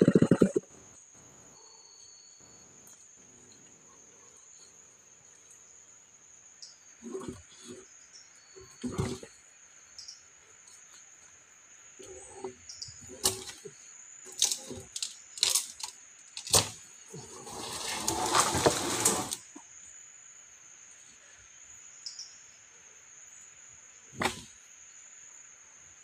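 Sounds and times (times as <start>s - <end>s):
high insect buzz: 0.0s - 26.0s
plank scraping over planks: 16.6s - 19.5s.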